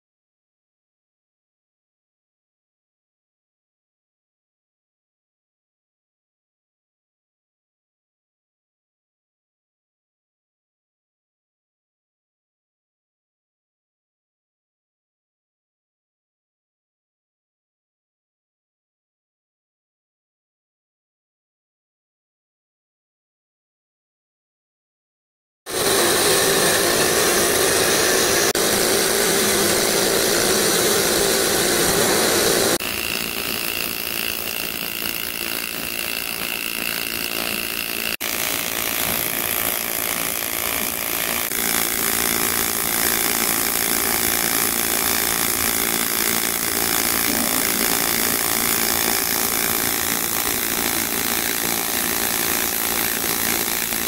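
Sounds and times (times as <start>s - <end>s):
welding arc hissing: 25.7s - 54.0s.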